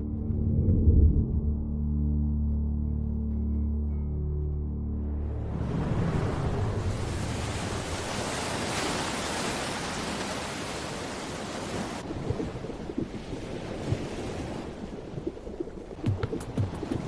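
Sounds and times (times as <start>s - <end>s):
muffled underwater rumble: 0.0s - 2.7s
ocean surf washing: 5.4s - 17.0s.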